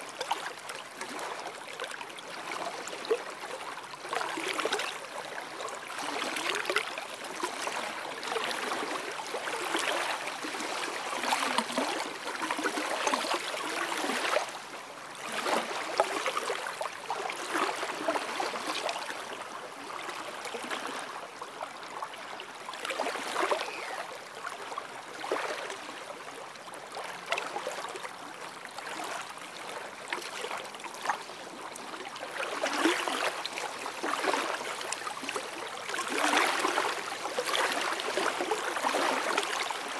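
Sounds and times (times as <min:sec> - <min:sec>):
small waves lapping on sand: 0:00.0 - 0:39.9.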